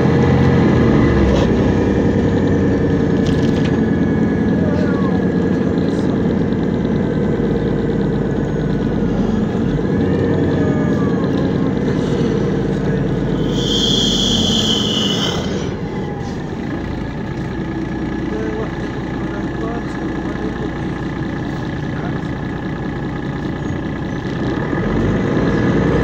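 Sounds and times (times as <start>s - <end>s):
gearbox whine: 0.0s - 24.9s
bus diesel engine running: 0.0s - 26.0s
loud air hiss: 13.4s - 15.7s.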